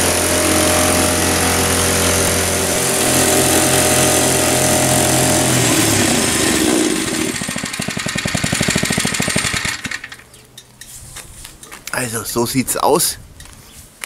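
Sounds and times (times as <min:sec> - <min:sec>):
plate compactor engine: 0:00.0 - 0:10.4.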